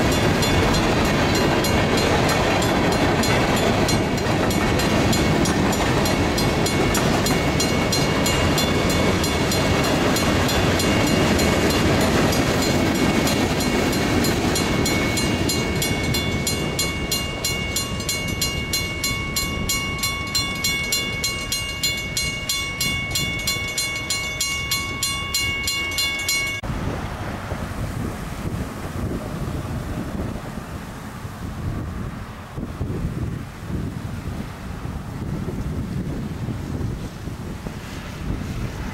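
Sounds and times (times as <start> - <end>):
crossing warning bell ringing: 0.0 - 26.7
freight train rolling on rails: 0.0 - 38.9.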